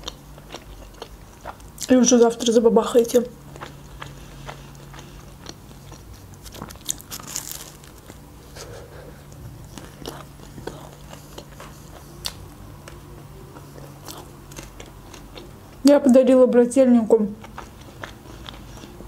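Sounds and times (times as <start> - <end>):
steady low hum: 0.0 - 19.0
crisp chewing crunches: 3.5 - 8.2, 9.3 - 15.5, 17.4 - 19.0.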